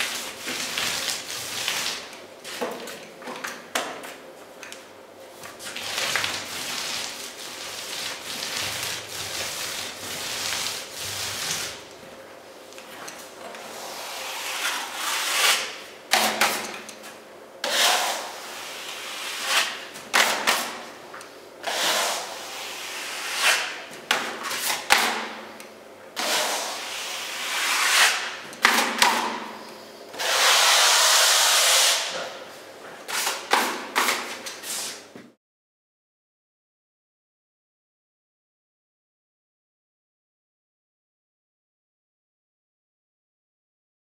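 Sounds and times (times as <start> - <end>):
blade scraping filler on wall: 5.6 - 11.9, 13.5 - 16.7, 17.6 - 20.8, 21.6 - 23.8, 26.2 - 29.4, 30.2 - 32.2.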